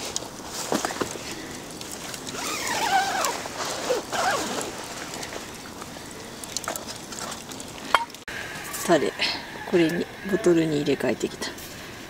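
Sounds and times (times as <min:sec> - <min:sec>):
tent zipper rasping: 0:02.3 - 0:05.1.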